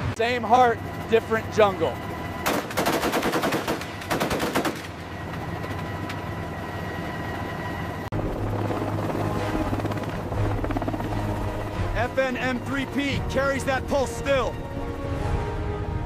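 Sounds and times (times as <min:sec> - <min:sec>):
helicopter rotor beating: 0:00.0 - 0:15.5
machine gun firing bursts: 0:02.4 - 0:05.0.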